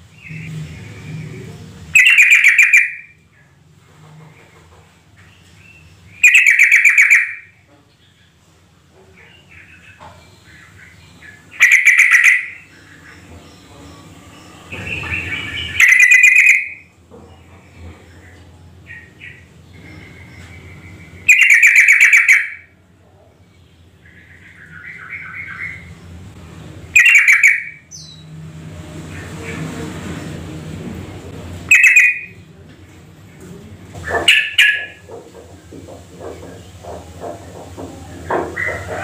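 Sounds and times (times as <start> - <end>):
bird singing loud rapid phrases: 0.0 - 3.5, 5.4 - 8.4, 9.2 - 22.7, 23.4 - 26.2, 26.9 - 28.3, 31.6 - 32.4, 34.2 - 35.0.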